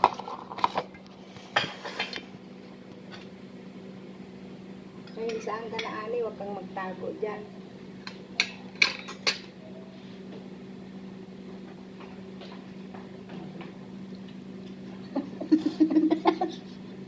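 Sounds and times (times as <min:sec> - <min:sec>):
steady low hum: 0:00.0 - 0:17.0
faint clicks of hands and food: 0:12.4 - 0:14.8.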